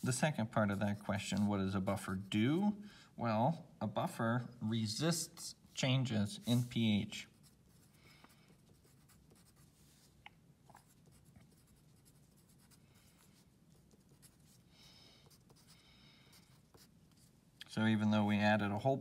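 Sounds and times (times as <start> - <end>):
pencil scratching on paper: 6.4 - 10.1, 10.7 - 14.6, 15.2 - 17.3.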